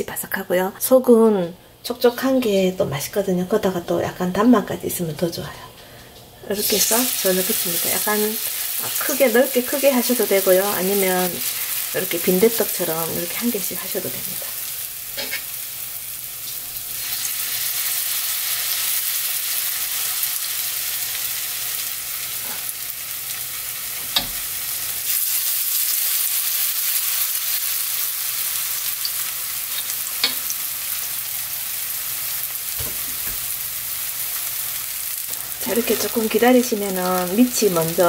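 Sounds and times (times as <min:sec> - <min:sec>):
batter sizzling in hot oil: 0:06.5 - 0:38.0.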